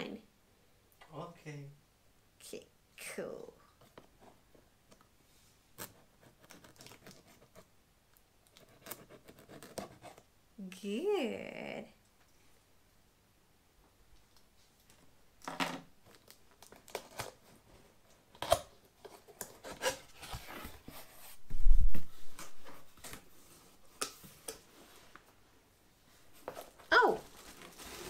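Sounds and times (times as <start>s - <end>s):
cardboard box scraping and rustling: 19.6s - 21.4s, 27.4s - 28.0s.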